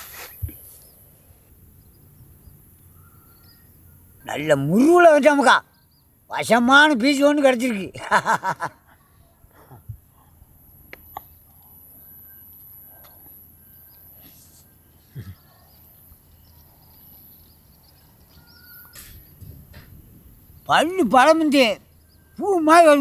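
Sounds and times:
faint bird chirps: 0.2s - 7.8s, 8.8s - 23.0s
man speaking: 4.3s - 5.6s, 6.3s - 8.0s, 20.7s - 21.8s, 22.4s - 23.0s.

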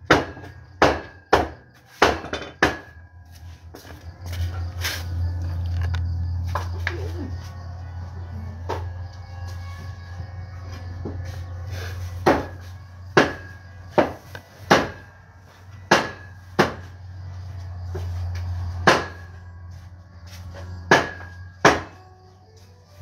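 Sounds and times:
steady low hum: 2.6s - 22.2s
cleaver chopping meat: 12.2s - 15.0s, 15.9s - 16.9s, 18.8s - 19.3s, 20.9s - 22.0s.

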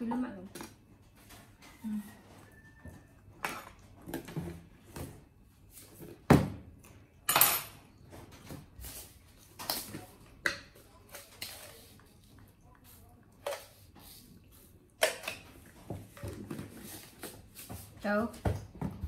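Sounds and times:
dishes and utensils clattering: 7.3s - 8.5s.

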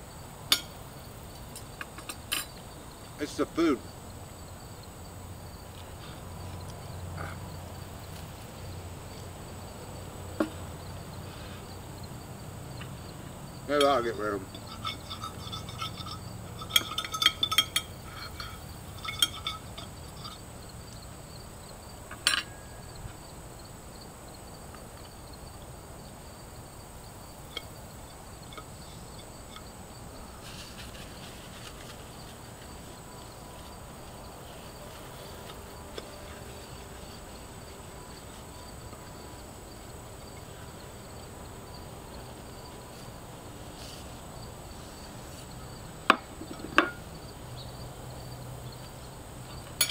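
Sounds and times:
cutlery clinking on a plate: 1.8s - 2.5s, 14.6s - 20.4s, 22.1s - 22.7s, 46.1s - 47.0s.

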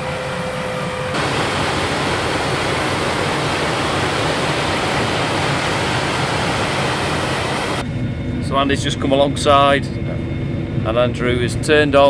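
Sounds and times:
combine harvester running: 1.1s - 7.8s.

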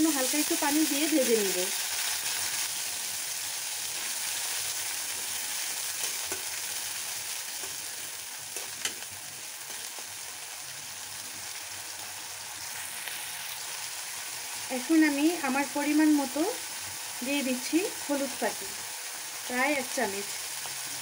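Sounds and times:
onion sizzling in hot oil: 0.0s - 21.0s
spatula scraping and knocking pan: 5.1s - 6.6s, 7.5s - 9.1s.

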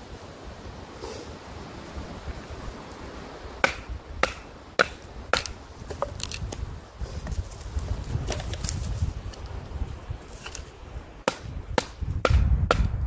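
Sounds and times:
stick striking knife spine: 3.6s - 5.6s.

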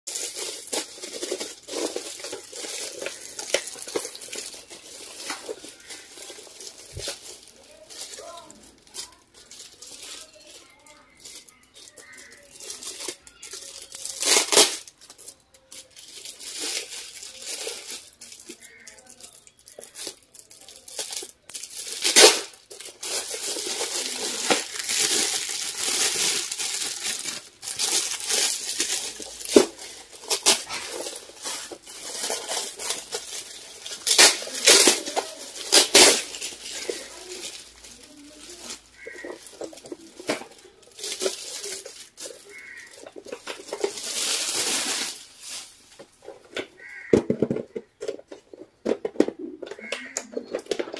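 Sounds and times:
foil gift wrap crinkling: 0.1s - 48.6s, 49.2s - 50.9s
sharp paper rips: 14.1s - 14.8s, 21.8s - 39.7s.

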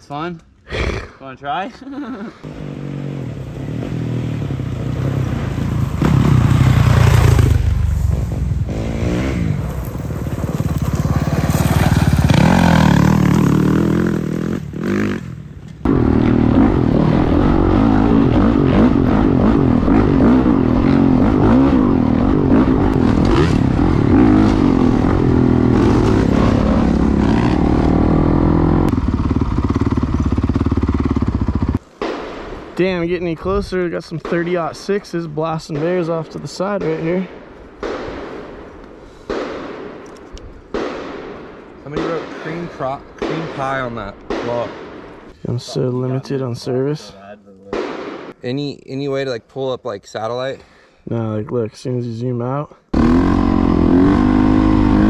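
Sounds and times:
dirt bike engine revving: 2.4s - 31.8s, 52.9s - 55.0s.

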